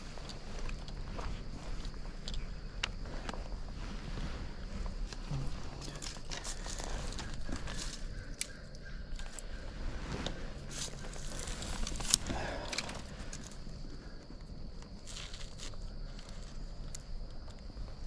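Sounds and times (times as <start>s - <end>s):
footsteps crunching dry grass: 0.0s - 17.2s
twig snapping: 5.8s - 9.4s.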